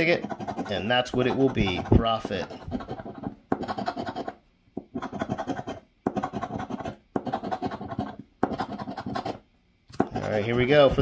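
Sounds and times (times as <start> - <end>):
scratching lottery ticket coating: 0.0 - 4.4.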